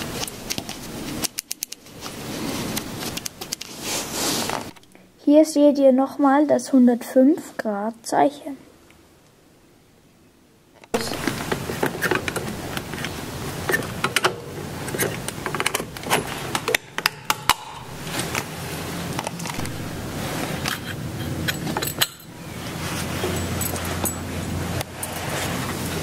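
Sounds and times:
metal clicks and clinks: 20.6 - 22.4, 23.2 - 25.6.

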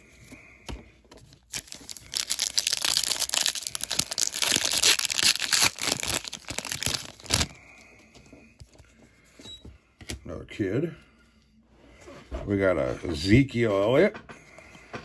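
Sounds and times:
plastic wrapper crinkling and tearing: 1.3 - 7.8.

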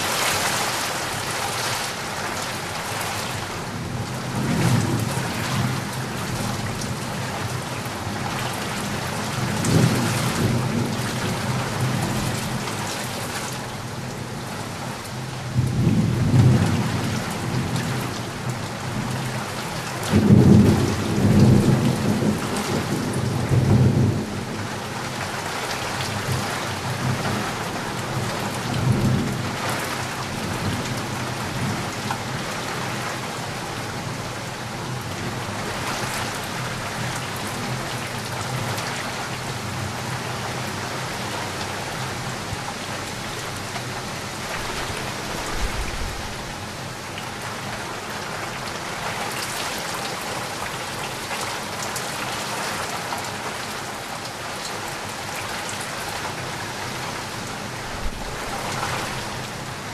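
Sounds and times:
heavy rain pattering: 0.0 - 59.9
low rumble of thunder: 8.9 - 12.7, 20.1 - 25.1, 44.3 - 46.8, 57.8 - 59.8.

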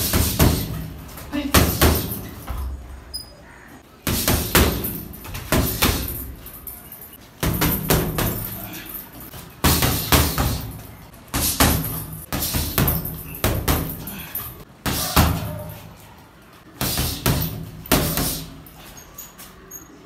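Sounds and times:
punches on a heavy bag: 0.0 - 0.9, 9.6 - 14.2, 16.8 - 18.5.

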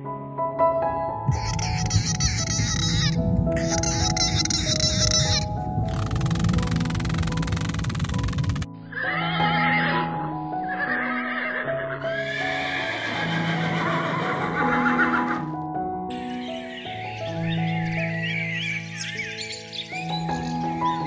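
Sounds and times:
gentle background music: 0.0 - 21.0
horse whinnying: 8.9 - 10.1, 10.7 - 15.6.

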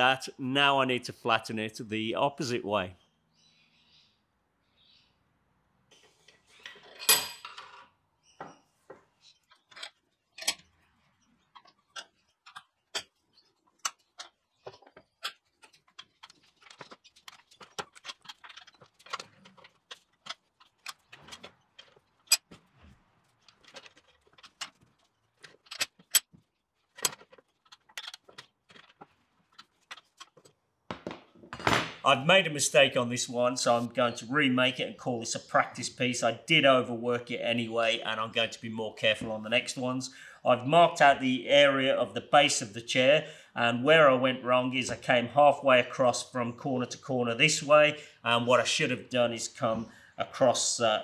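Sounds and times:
metal clattering rattle: 13.8 - 30.4.

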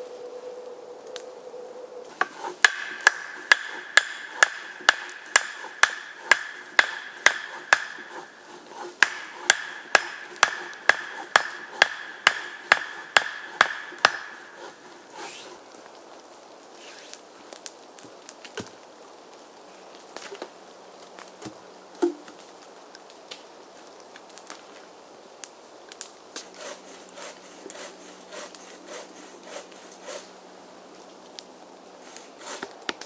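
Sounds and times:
hammer blows on wooden stake: 2.2 - 15.4.

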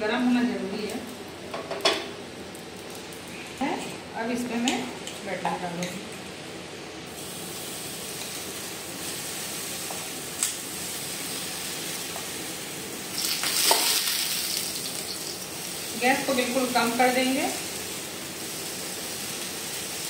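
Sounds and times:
batter sizzling on hot pan: 7.1 - 20.0.

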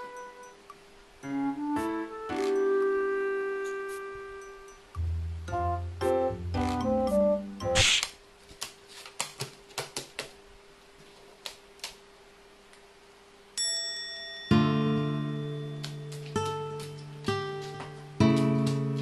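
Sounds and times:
strummed acoustic guitar music: 14.5 - 19.0.

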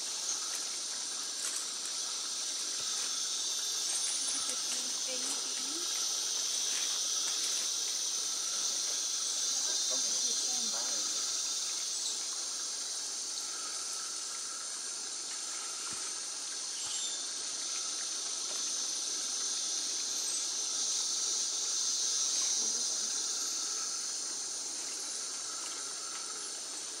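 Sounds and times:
high-pitched insect buzz: 0.0 - 27.0
low insect trill: 0.0 - 27.0.

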